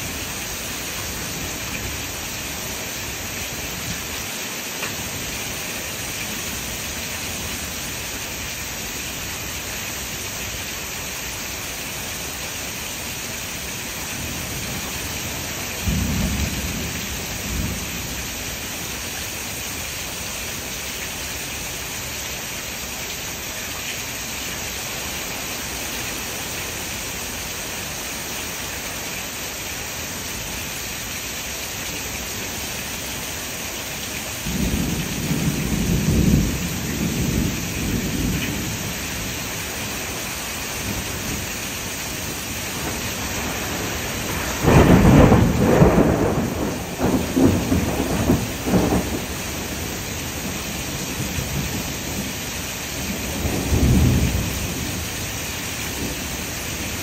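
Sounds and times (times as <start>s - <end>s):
rain hissing: 0.0s - 57.0s
thunder rumbling: 34.5s - 40.2s, 42.7s - 52.3s, 53.0s - 55.0s.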